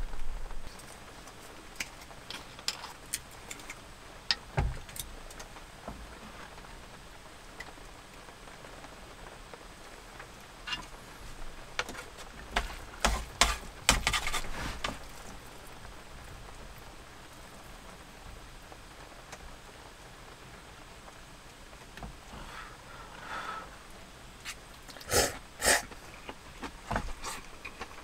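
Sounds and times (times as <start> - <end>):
light rain pattering: 0.0 - 28.0
chopsticks tapping food box: 11.8 - 15.0.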